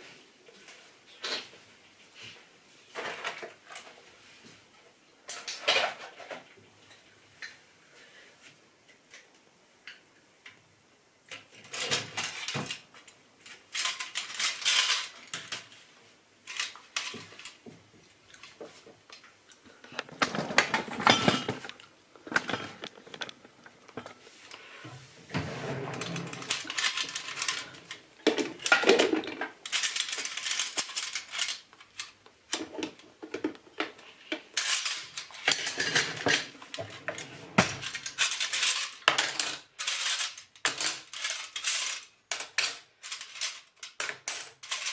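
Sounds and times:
cutlery and dishes clattering: 5.3 - 7.0, 20.0 - 24.2, 25.4 - 34.0, 34.6 - 44.9
cutlery rattling into drawer tray: 13.7 - 15.6, 20.2 - 21.7, 25.4 - 33.4, 34.6 - 44.9.

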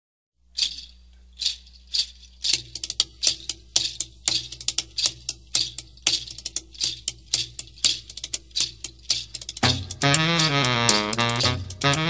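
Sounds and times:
hand percussion rhythm: 0.6 - 12.0
low drum tone: 9.6 - 12.0.

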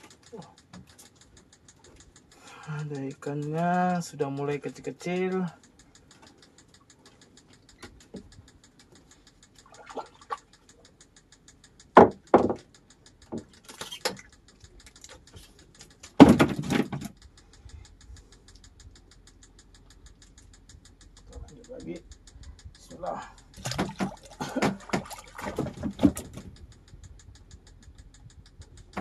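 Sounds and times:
sharp knocks: 12.0 - 12.7, 16.2 - 17.2.

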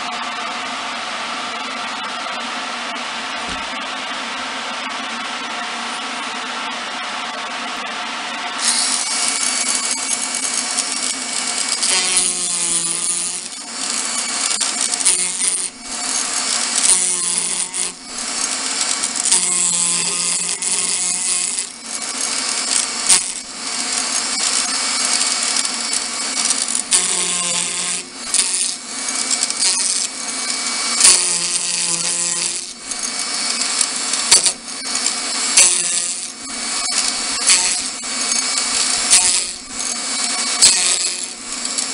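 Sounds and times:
rotary tool grinding wood: 8.6 - 41.9.

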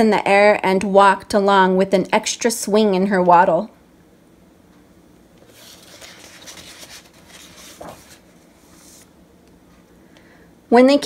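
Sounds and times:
book page rustling: 5.4 - 9.1.

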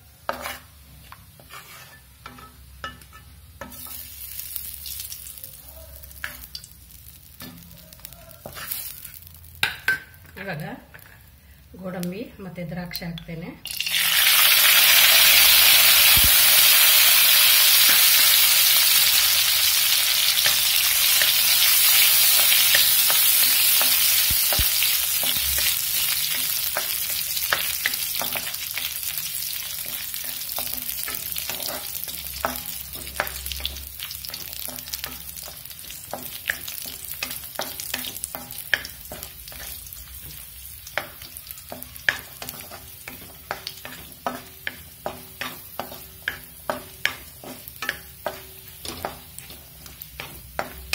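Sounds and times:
nuts sizzling in hot oil: 0.0 - 50.9
spatula tapping and scraping pan: 0.2 - 4.1, 7.3 - 11.2, 20.3 - 50.9.

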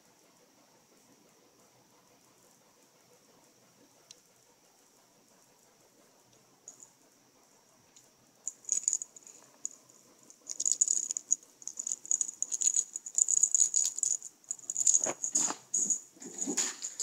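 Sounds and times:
small bell jingling in toy ball: 8.5 - 17.0.

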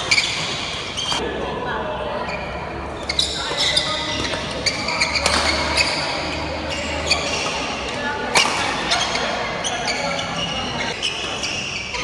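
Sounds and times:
shoes squeaking on wooden floor: 0.0 - 1.2, 2.3 - 7.8
rackets hitting shuttlecock: 3.5 - 6.4, 7.0 - 9.4.

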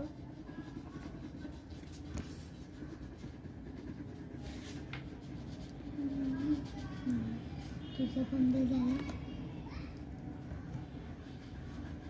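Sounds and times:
crayon rubbing on paper: 0.0 - 9.1, 10.8 - 12.0.

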